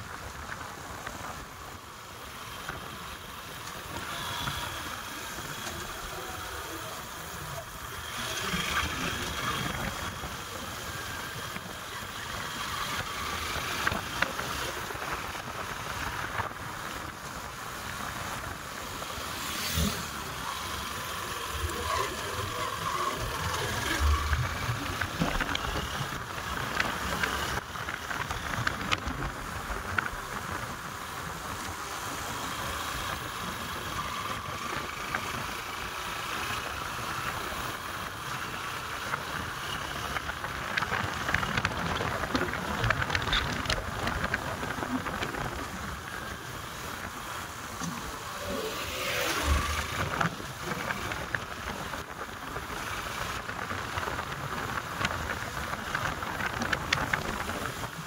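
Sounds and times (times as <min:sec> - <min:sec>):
wind-like rushing noise: 0:00.0 - 0:58.0
vehicle running: 0:02.3 - 0:58.0.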